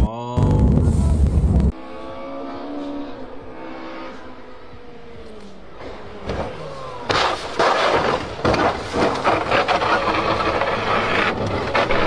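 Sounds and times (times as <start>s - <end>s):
rally car engine: 0.0s - 12.0s
car crashing through brush: 5.8s - 12.0s
knocks and thuds: 7.1s - 9.6s
branches snapping: 7.1s - 9.7s.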